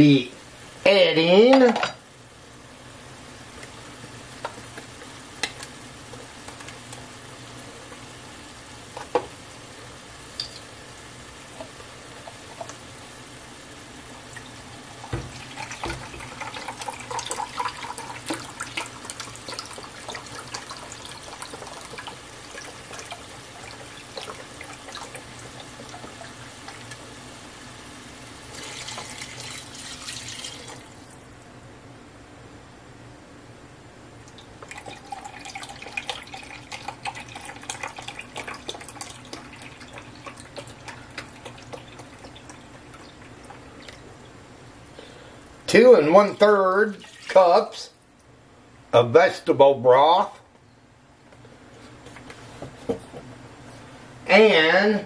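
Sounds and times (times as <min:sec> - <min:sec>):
broth pouring into measuring cup: 0:14.4 - 0:26.9, 0:28.4 - 0:31.2, 0:34.4 - 0:44.1, 0:46.9 - 0:47.6.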